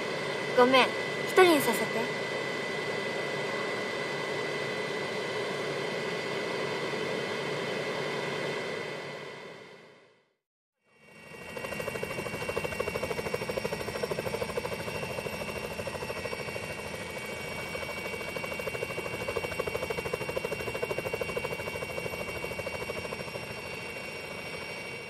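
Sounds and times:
aircraft engines droning in cabin: 0.0 - 10.2, 10.9 - 25.0.

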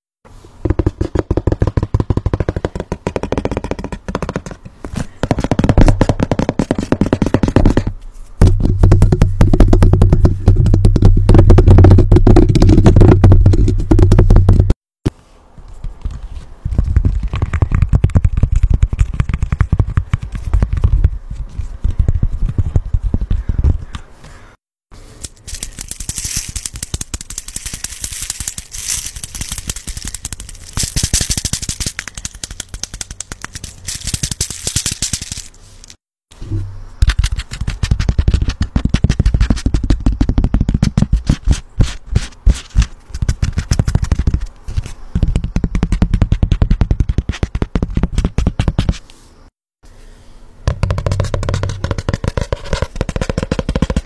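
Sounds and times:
fingertips tapping silicone toy: 0.6 - 7.9
tapping on paper notepad: 0.6 - 14.8, 37.0 - 49.0, 50.7 - 54.0
tapping on plastic bottle: 0.6 - 14.8, 50.7 - 54.0.

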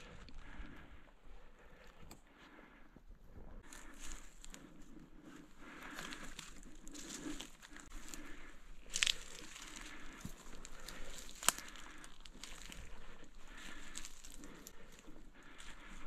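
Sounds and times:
rustling and crinkling: 3.6 - 16.0.

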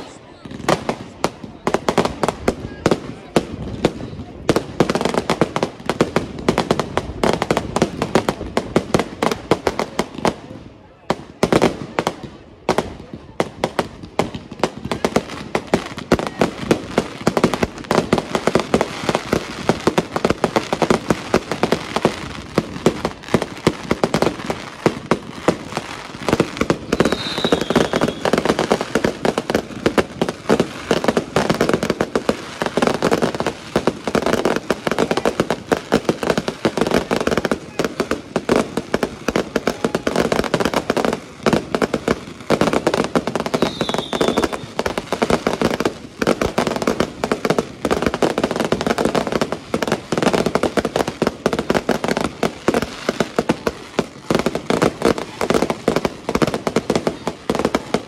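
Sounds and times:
fireworks bangs and pops: 0.0 - 58.0
falling firework whistle: 26.8 - 28.4, 43.5 - 44.9.

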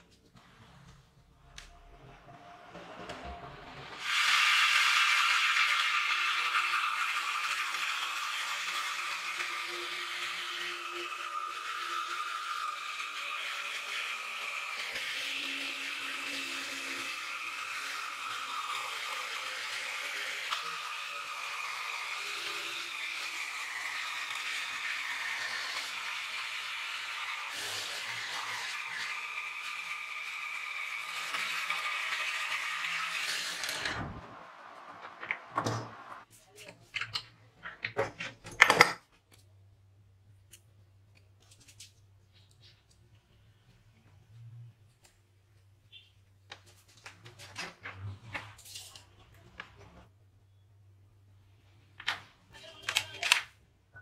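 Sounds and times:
jigsaw cutting wood: 3.5 - 34.4
workpieces clicking and knocking: 35.0 - 39.5.

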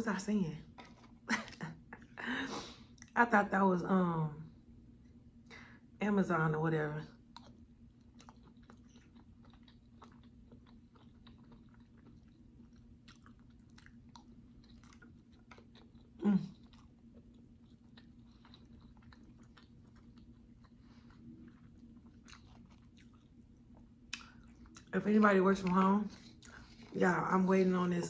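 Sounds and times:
wet chewing mouth sounds: 0.6 - 2.1, 7.3 - 27.4.

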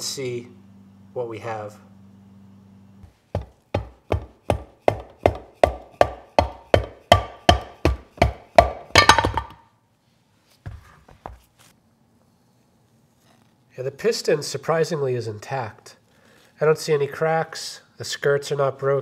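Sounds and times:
hammer tapping on metal: 3.4 - 9.6
metal clatter: 8.9 - 9.6.

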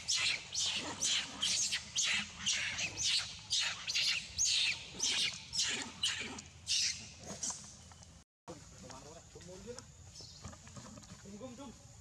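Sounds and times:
monkey squealing: 0.0 - 7.5.

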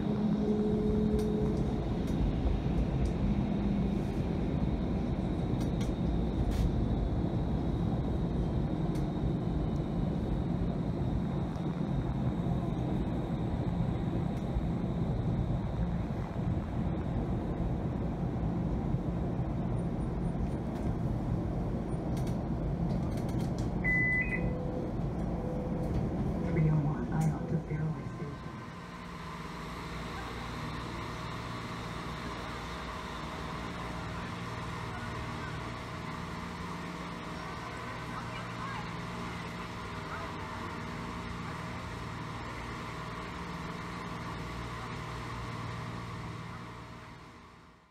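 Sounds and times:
light rail rumble: 0.0 - 47.8
short electronic beep: 23.8 - 24.6.

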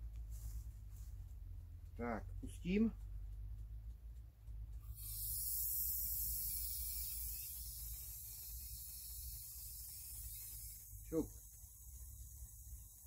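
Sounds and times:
aerosol generator hissing: 4.8 - 13.0.

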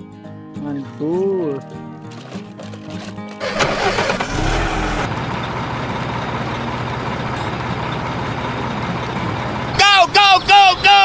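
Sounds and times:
truck engine running: 2.6 - 11.0.

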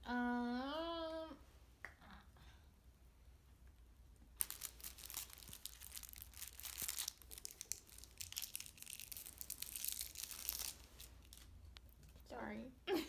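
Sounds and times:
plastic crinkling and rustling: 4.4 - 12.3.

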